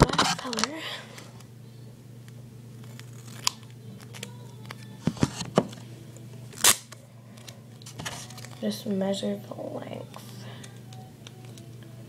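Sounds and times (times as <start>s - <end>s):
scissors snipping tape: 2.8s - 4.9s.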